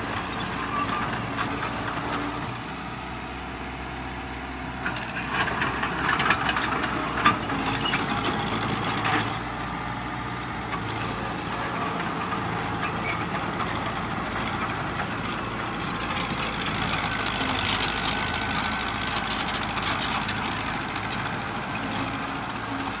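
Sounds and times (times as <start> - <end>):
bulldozer diesel engine: 0.0 - 23.0.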